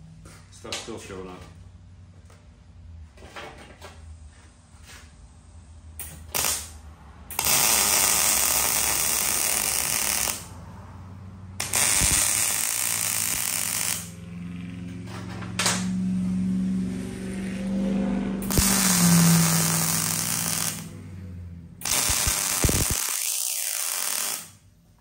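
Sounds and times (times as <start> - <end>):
welding arc crackling: 6.0 - 10.6, 11.6 - 14.3, 18.4 - 21.0, 21.8 - 24.6.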